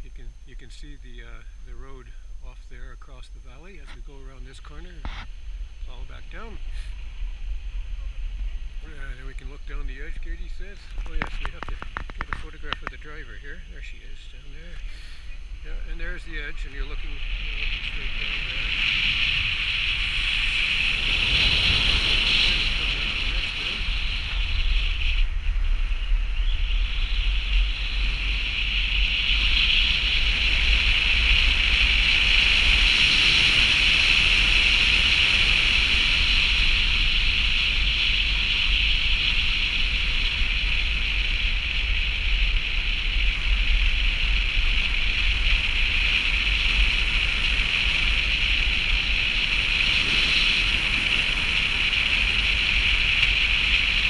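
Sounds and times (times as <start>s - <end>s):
wind rushing over microphone: 0.0s - 54.0s
tyres rumbling on snowy road: 10.5s - 13.1s, 16.1s - 54.0s.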